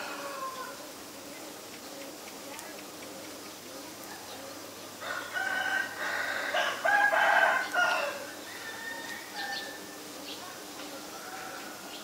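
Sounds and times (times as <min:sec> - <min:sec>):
rooster crowing: 0:00.0 - 0:00.8, 0:05.0 - 0:10.0.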